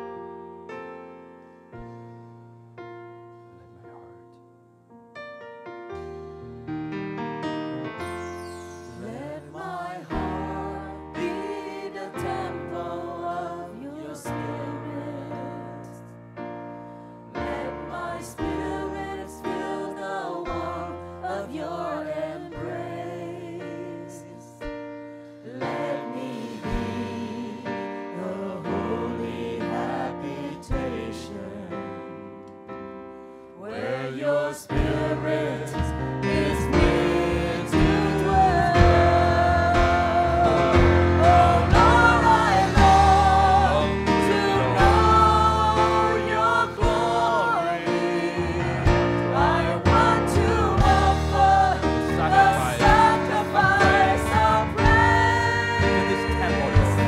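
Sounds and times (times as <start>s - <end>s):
instrumental accompaniment: 0.1s - 23.3s, 32.2s - 57.0s
group singing a praise song: 8.2s - 16.0s, 17.3s - 24.5s, 25.3s - 32.1s, 33.6s - 57.0s.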